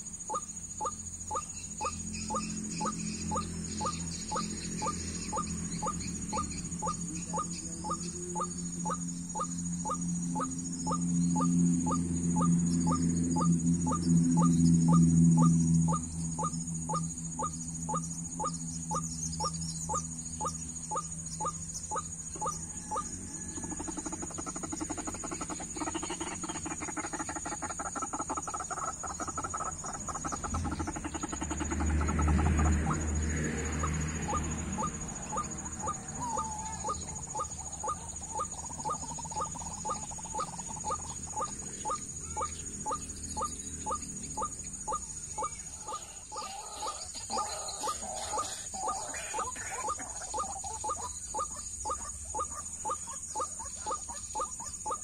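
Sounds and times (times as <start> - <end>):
waterhen calling: 34.3 - 41.5, 45.4 - 55.0.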